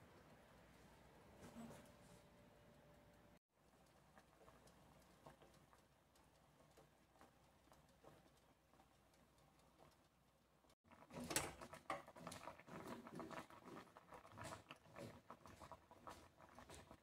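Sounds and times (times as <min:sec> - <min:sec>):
water simmering in a pot: 0:03.5 - 0:17.0.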